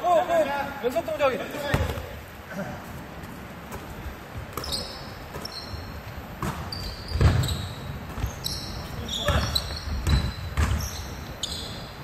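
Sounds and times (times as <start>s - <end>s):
sneaker squeaks: 1.5s - 2.2s, 3.0s - 12.0s
basketball bouncing on wooden floor: 1.7s - 2.1s, 6.4s - 11.0s.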